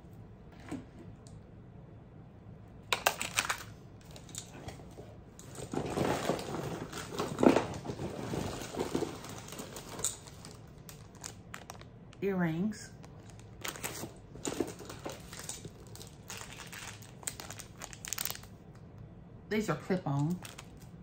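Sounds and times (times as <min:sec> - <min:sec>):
paper and plastic rustling: 0:03.0 - 0:11.9, 0:13.0 - 0:18.6, 0:20.3 - 0:21.0.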